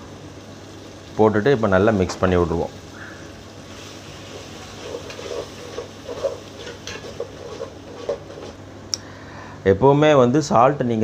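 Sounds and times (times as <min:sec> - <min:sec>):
paste sizzling in oil: 0:00.1 - 0:08.7
metal ladle scraping a pot: 0:04.2 - 0:08.6.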